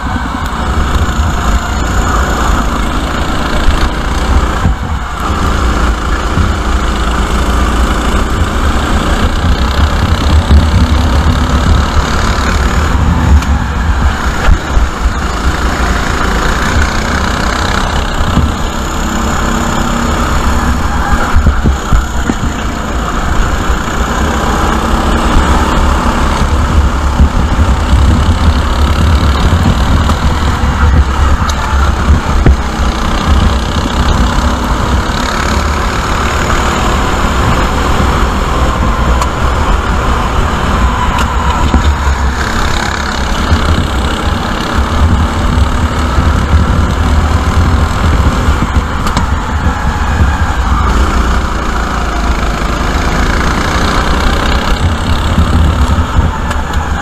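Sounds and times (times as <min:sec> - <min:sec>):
kart engine running hard: 0:00.0 - 0:57.0.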